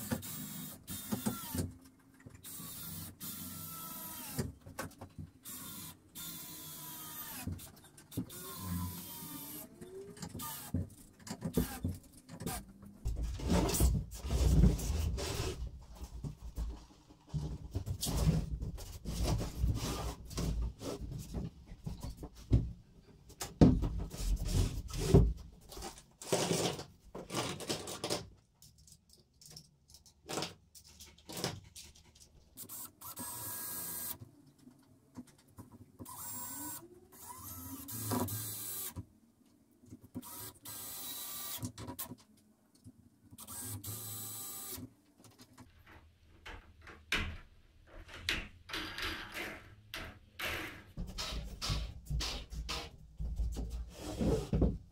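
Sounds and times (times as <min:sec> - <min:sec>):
cordless drill driving screws: 0:00.0 - 0:01.7, 0:02.4 - 0:04.5, 0:05.4 - 0:10.8, 0:11.5 - 0:12.6, 0:32.6 - 0:34.2, 0:36.1 - 0:39.0, 0:40.2 - 0:41.6, 0:43.4 - 0:44.9.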